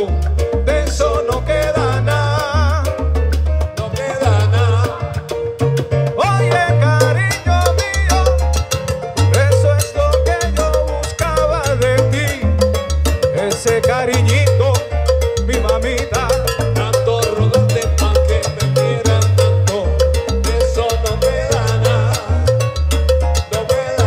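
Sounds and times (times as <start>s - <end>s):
bass line: 0.0s - 24.0s
congas and bongos: 0.0s - 24.0s
melodic lines: 6.4s - 24.0s.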